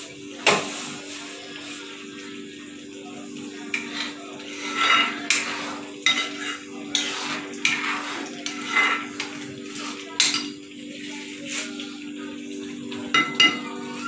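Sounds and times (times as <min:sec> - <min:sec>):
metal spoon scraping gravy: 0:03.8 - 0:09.4.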